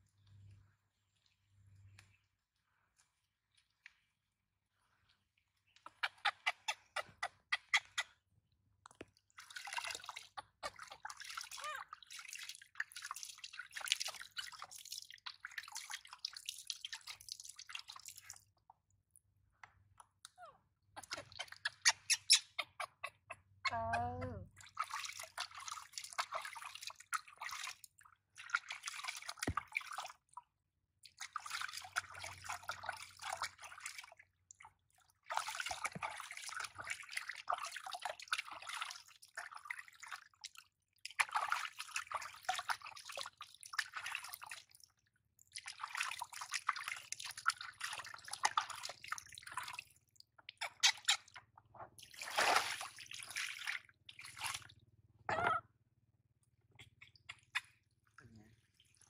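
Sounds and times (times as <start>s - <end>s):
water splashing in plastic basin: 24.5s - 30.4s, 31.1s - 40.4s, 41.1s - 44.9s, 45.5s - 50.0s, 52.0s - 54.7s.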